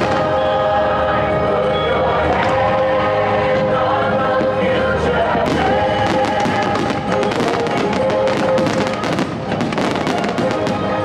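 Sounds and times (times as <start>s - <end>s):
fireworks bursting and crackling: 0.0s - 0.6s, 3.6s - 11.0s
music soundtrack: 0.0s - 11.0s.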